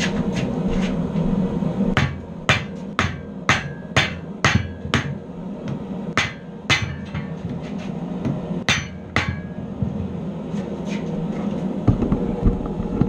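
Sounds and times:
hammer clanging on steel: 0:02.0 - 0:09.9.

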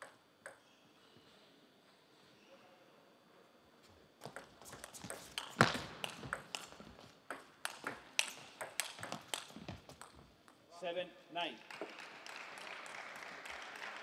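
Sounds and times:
ball bouncing on table: 0:04.2 - 0:10.6
ping pong ball hitting bats: 0:04.2 - 0:10.6.

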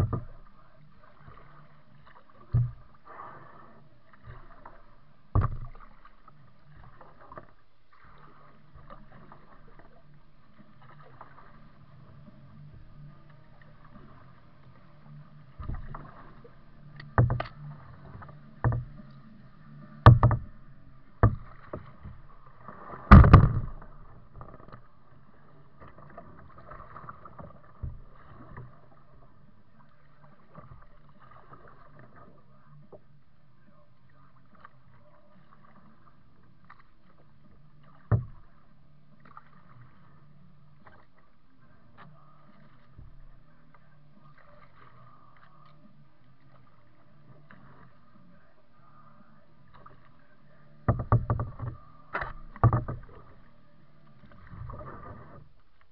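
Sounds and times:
paddle knocking on plastic hull: 0:00.0 - 0:00.5, 0:02.4 - 0:02.9, 0:04.2 - 0:07.5, 0:15.6 - 0:19.1, 0:19.9 - 0:24.8, 0:38.0 - 0:38.6, 0:50.8 - 0:53.4.

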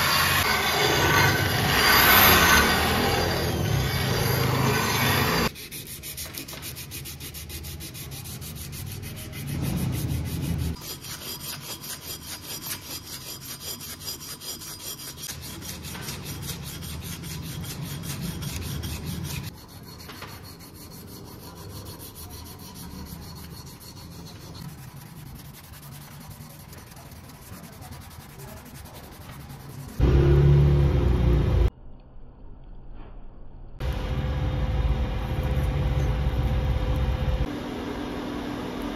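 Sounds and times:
sandpaper rubbing on wood: 0:00.0 - 0:30.0.

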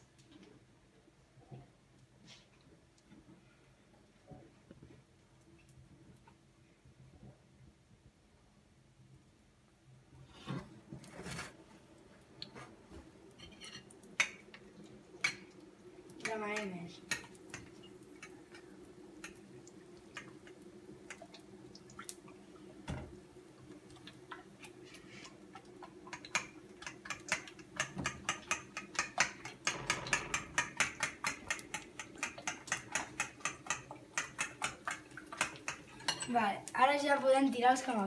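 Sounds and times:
fork beating eggs in a plate: 0:16.2 - 0:19.5, 0:24.6 - 0:36.3.

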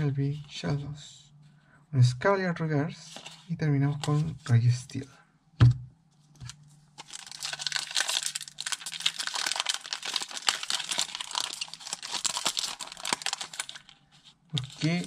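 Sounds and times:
thump: 0:05.6 - 0:05.9
foil wrapper crinkling: 0:06.4 - 0:15.0.

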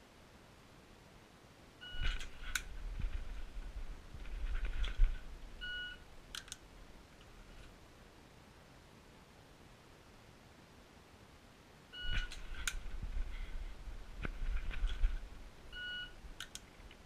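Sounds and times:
low rumbling handling noise: 0:02.0 - 0:07.7, 0:12.1 - 0:15.7
pistol dry-fire clicks: 0:06.3 - 0:06.7, 0:16.4 - 0:16.7
shot timer beeps: 0:12.0 - 0:12.4.

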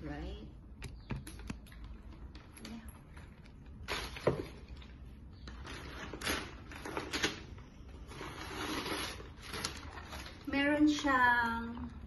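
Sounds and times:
crinkly paper packaging handled: 0:03.2 - 0:11.0.

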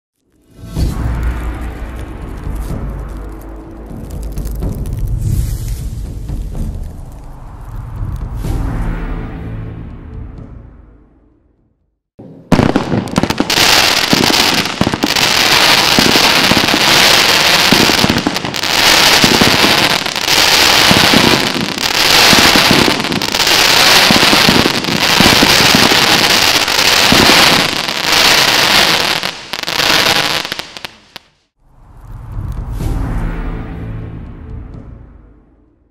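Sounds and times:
firework cake crackling and fizzing: 0:12.6 - 0:31.3.

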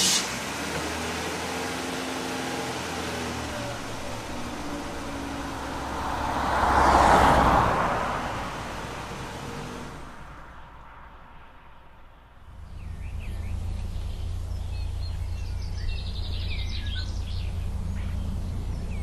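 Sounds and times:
car passing by: 0:00.0 - 0:13.8
car engine running: 0:00.0 - 0:19.0.

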